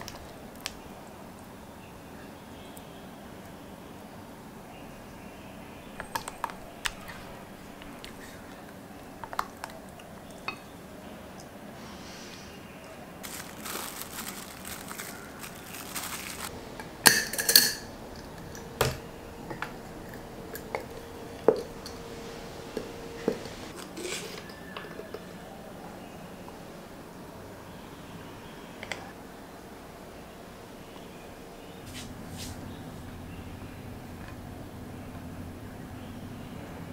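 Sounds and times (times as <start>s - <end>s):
plastic wrap crinkling: 13.2s - 16.5s.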